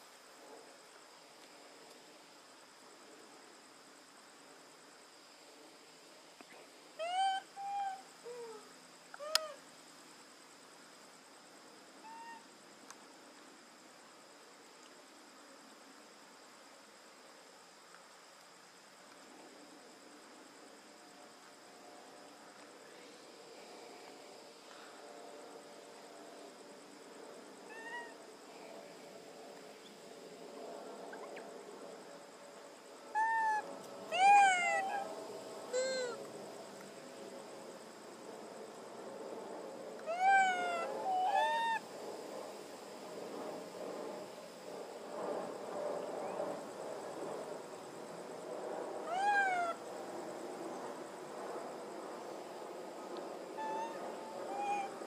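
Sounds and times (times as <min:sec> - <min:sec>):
infant monkey cooing: 0:07.0 - 0:09.6, 0:33.2 - 0:35.1, 0:35.7 - 0:36.2, 0:40.1 - 0:41.8, 0:49.1 - 0:49.8, 0:53.6 - 0:55.0.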